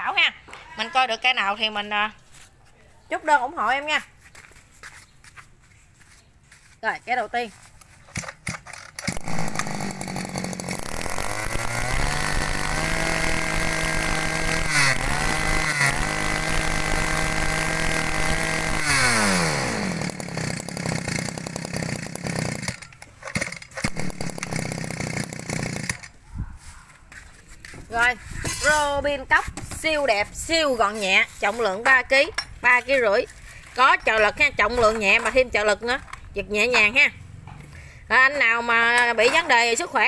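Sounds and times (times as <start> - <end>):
brush-cutter engine revving: 8.7 - 26.1.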